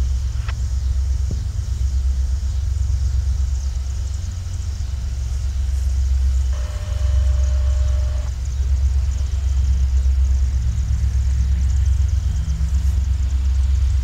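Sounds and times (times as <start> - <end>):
diesel locomotive rumble: 0.0 - 14.0
steady tone: 6.5 - 8.3.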